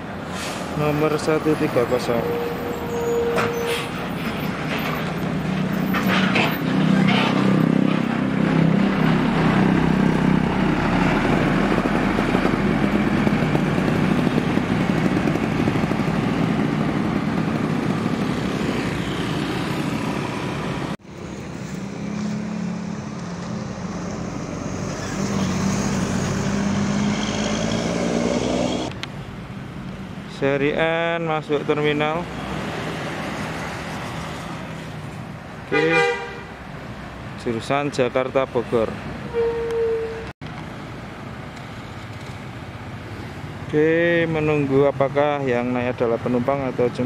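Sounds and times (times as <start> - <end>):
road noise: 0.0 - 47.0
bus engine accelerating: 0.1 - 29.0
bus diesel engine driving off: 19.9 - 29.0.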